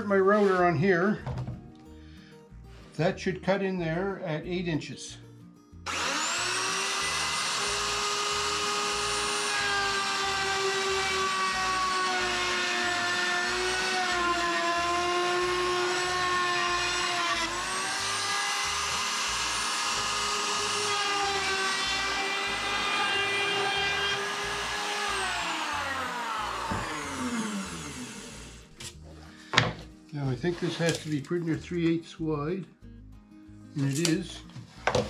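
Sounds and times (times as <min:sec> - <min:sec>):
router whining: 0:05.9 - 0:29.0.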